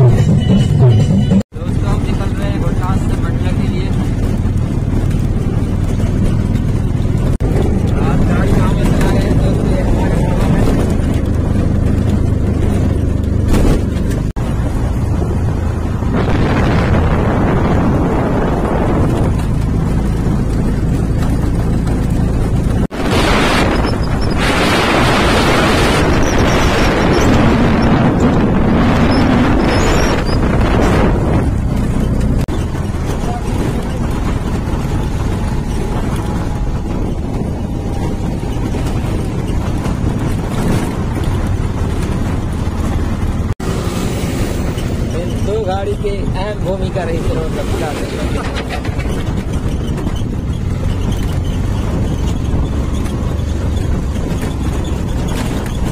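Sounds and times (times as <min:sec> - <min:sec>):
auto-rickshaw engine running: 0:00.0 - 0:55.9
road and wind noise: 0:00.0 - 0:55.9.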